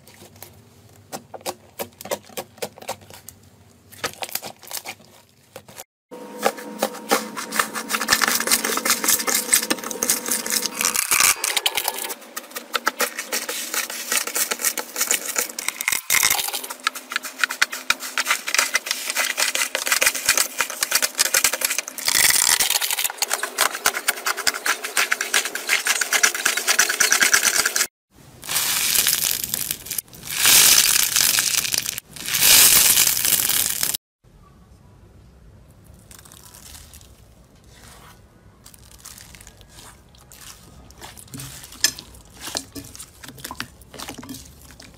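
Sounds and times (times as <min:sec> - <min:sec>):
foam block crackling: 0:28.3 - 0:34.0
crunchy slime crackling: 0:28.4 - 0:34.0, 0:35.9 - 0:44.9.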